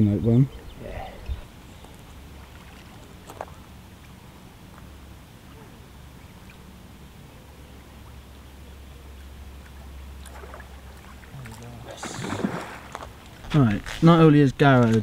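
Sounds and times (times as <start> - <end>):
fish splashing at the surface: 9.7 - 13.4.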